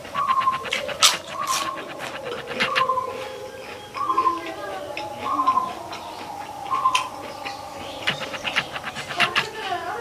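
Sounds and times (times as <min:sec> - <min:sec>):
close chewing mouth smacks: 0:00.0 - 0:02.9.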